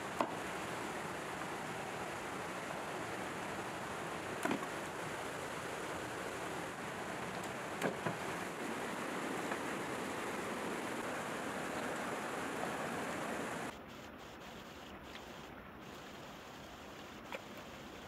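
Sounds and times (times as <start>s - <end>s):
stream running over stones: 0.0s - 13.7s.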